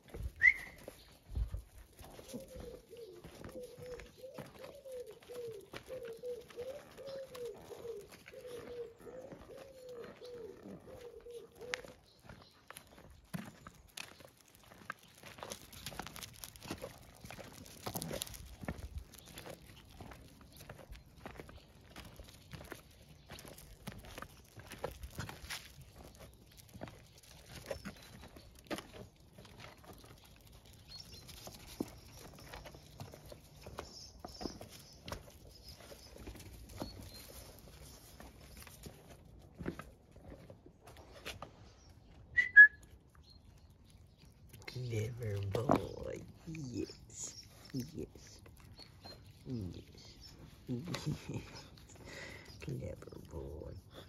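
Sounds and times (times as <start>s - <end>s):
clicks and scuffs on gravel: 0.0s - 54.0s
pigeon cooing: 2.1s - 12.1s.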